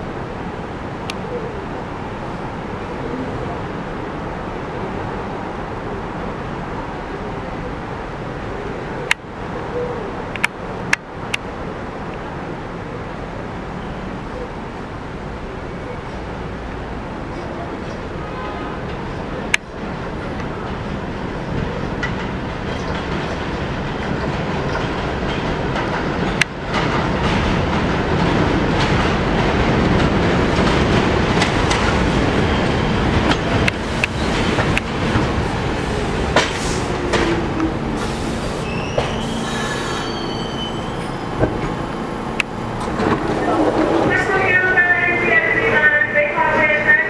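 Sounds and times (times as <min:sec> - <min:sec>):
train wheels rumbling on rails: 0:14.8 - 0:47.0
wheels clacking over rail joints: 0:17.8 - 0:38.2, 0:38.8 - 0:45.8
brake squeal: 0:38.0 - 0:42.1.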